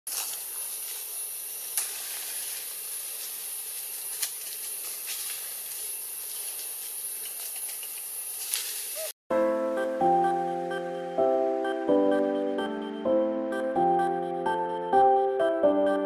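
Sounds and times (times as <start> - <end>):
high-pitched hiss: 0.1 - 9.2.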